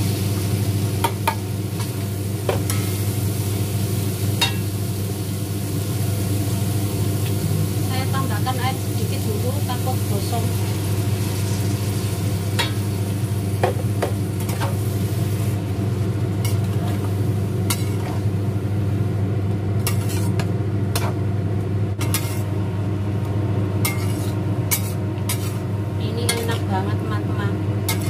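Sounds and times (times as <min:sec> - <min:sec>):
steady low hum: 0:00.0 - 0:28.0
spatula scraping and knocking a wok: 0:13.6 - 0:14.8, 0:17.7 - 0:18.2, 0:19.8 - 0:21.2, 0:22.0 - 0:22.5, 0:23.8 - 0:25.6.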